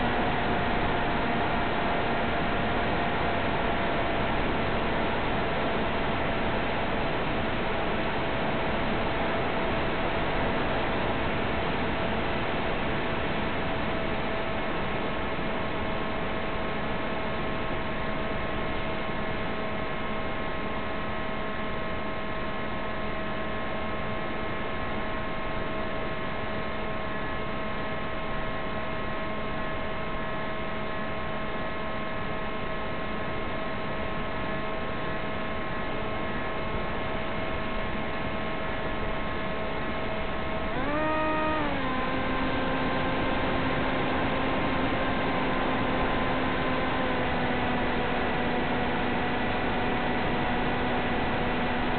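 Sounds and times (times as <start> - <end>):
electric motor and propeller hum: 40.0 - 51.9.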